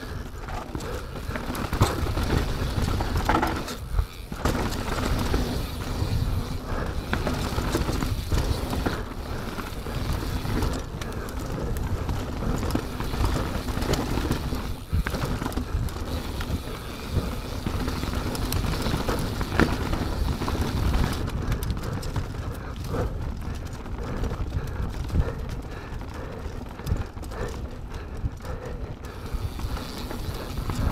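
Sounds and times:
bike tyres rolling over rocks: 0.0s - 30.9s
bike knocks and clatter: 0.4s - 6.2s.

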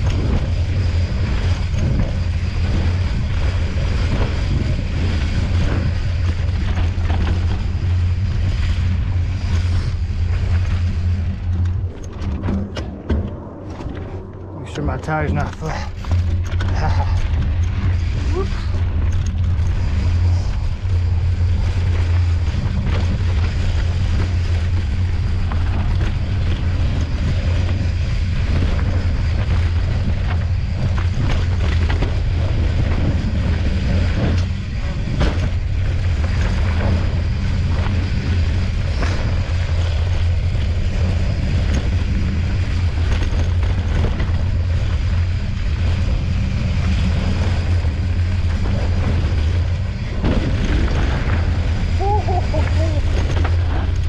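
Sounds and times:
bike knocking and rattling: 0.0s - 54.0s
wind buffeting microphone: 0.0s - 54.0s
tyres rolling on dirt and rock: 14.7s - 54.0s.

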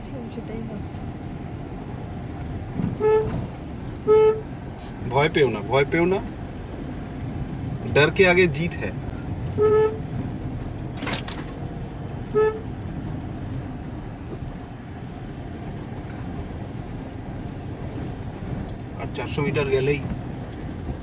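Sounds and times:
car rumbling on dirt track: 0.0s - 21.0s
car horn beeps: 3.0s - 3.4s, 4.0s - 4.5s, 9.5s - 10.1s, 12.3s - 12.7s.

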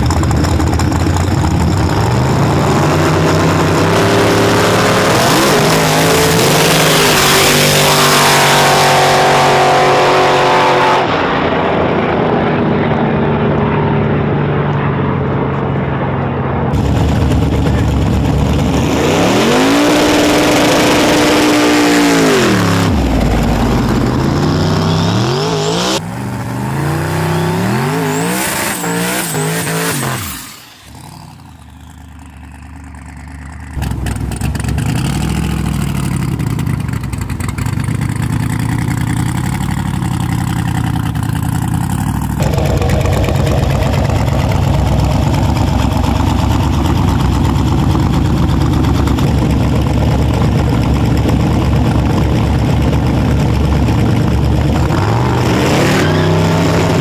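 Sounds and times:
drag car engine revving: 0.0s - 15.8s, 16.7s - 57.0s.

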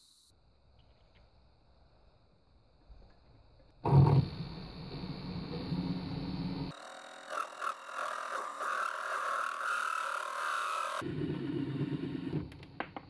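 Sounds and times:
lathe motor humming: 3.9s - 11.0s
parting tool squealing: 6.7s - 11.0s.

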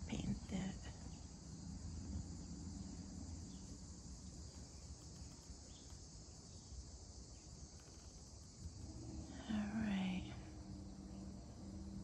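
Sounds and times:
faint low rumble: 0.0s - 6.0s, 8.4s - 12.0s
insects chirring: 0.0s - 12.0s.

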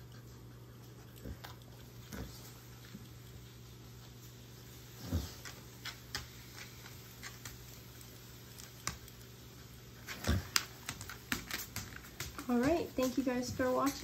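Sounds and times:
dog claws clicking on wood floor: 5.4s - 9.3s, 10.0s - 14.0s.

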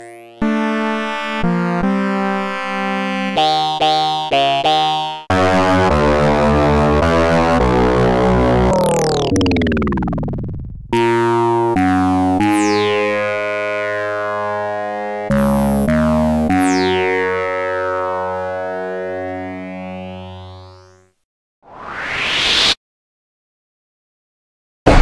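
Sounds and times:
held synthesizer notes: 0.0s - 21.1s
synthesizer pitch sweep: 5.3s - 21.1s.

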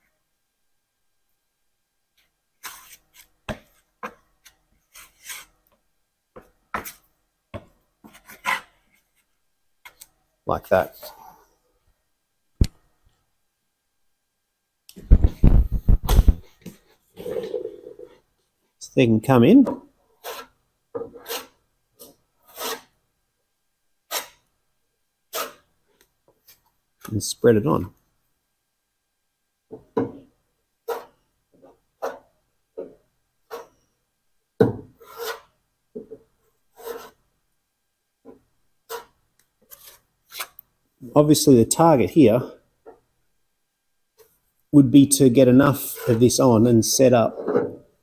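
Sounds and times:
body filler mixing scrapes: 22.5s - 23.0s, 45.3s - 46.6s
spreader scraping body filler: 45.7s - 46.4s.

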